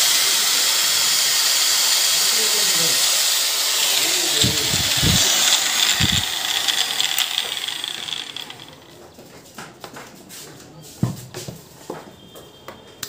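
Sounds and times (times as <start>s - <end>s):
angle grinder motor running: 0.0s - 9.0s.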